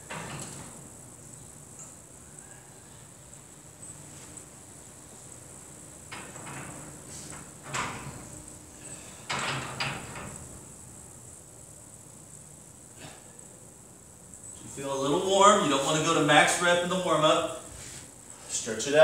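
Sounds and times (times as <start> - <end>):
faint high-pitched whine: 0.0 - 19.0
movement noise on gym floor: 3.3 - 10.4, 17.4 - 18.6.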